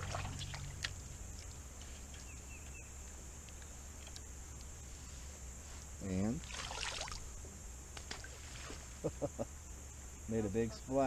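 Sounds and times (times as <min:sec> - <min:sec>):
faint ticks: 0:00.5 - 0:04.8
bird chirps: 0:02.1 - 0:03.1.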